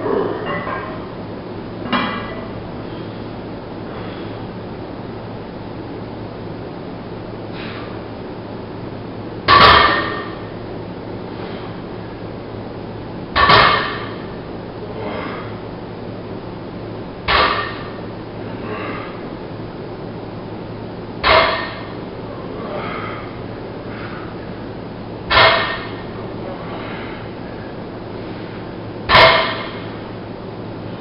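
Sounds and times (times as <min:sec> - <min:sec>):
barbell clanging on rubber floor: 0:01.9 - 0:02.5, 0:09.5 - 0:10.5, 0:13.4 - 0:14.2, 0:21.2 - 0:22.0, 0:25.3 - 0:26.0, 0:29.1 - 0:29.8.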